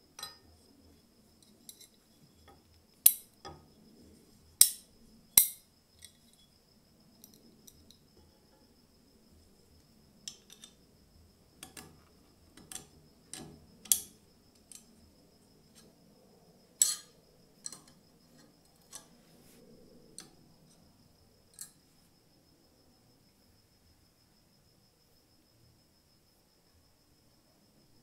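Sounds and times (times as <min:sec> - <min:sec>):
small metal clicks: 0:01.4 - 0:03.6, 0:10.3 - 0:10.8, 0:11.6 - 0:15.0, 0:16.8 - 0:19.2, 0:21.5 - 0:21.8.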